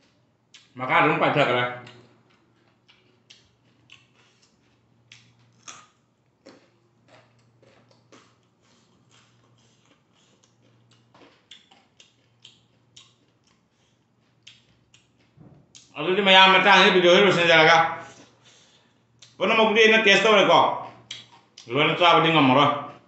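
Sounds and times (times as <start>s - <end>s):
man chewing raw vegetables: 0.0s - 0.8s, 1.8s - 16.0s, 17.9s - 19.4s, 20.6s - 21.7s.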